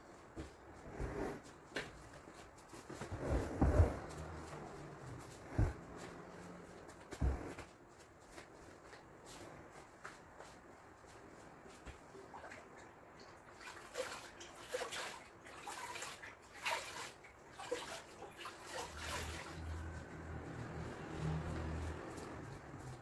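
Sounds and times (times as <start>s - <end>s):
water splashing in a plastic bucket: 12.3s - 20.0s.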